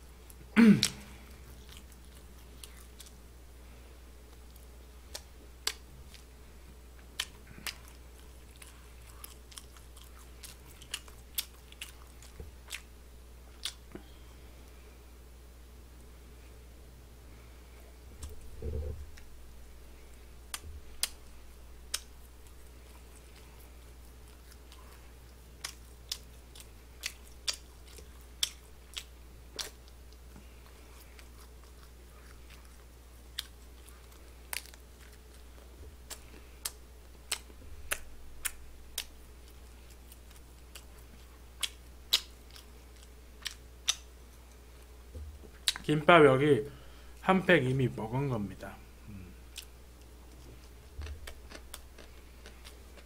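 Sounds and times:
person chewing food: 0.2s - 14.8s, 17.4s - 45.9s, 48.9s - 53.0s
sharp chewing clicks: 20.5s - 30.2s, 31.1s - 44.6s, 49.5s - 53.0s.

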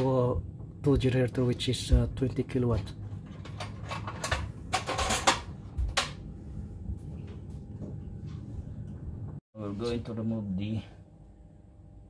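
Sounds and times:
steady low hum: 0.0s - 12.0s
clatters and knocks: 2.8s - 6.2s.

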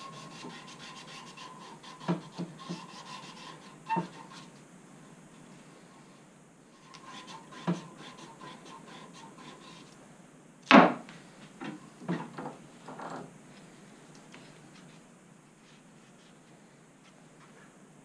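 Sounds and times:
rubbing strokes: 0.0s - 4.6s, 6.8s - 10.0s.

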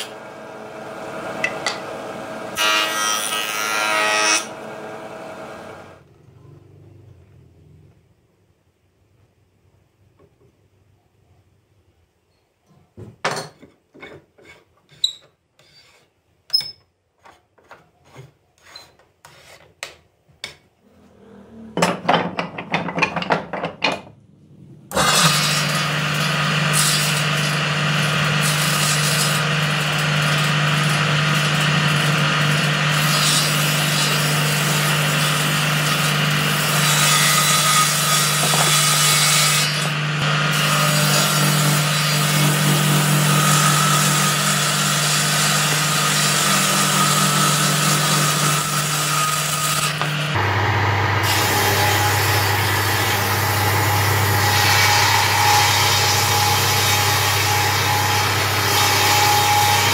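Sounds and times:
table saw motor humming: 0.0s - 6.0s, 50.0s - 59.9s
saw blade whirring: 49.9s - 59.9s.

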